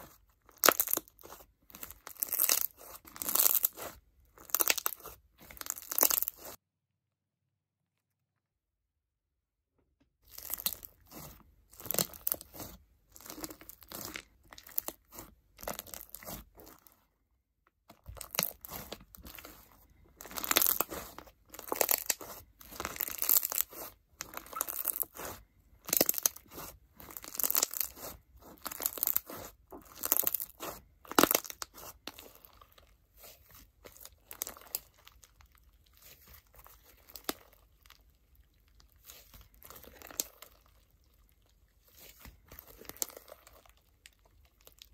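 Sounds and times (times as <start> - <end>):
crunchy slime squeezed by hand: 0.0 - 6.6, 10.2 - 17.0, 17.9 - 44.9.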